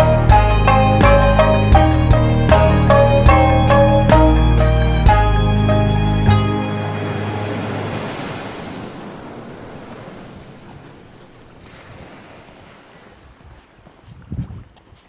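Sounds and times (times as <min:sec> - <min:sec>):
background music chord: 0:00.0 - 0:08.3
ocean waves washing ashore: 0:02.9 - 0:14.0.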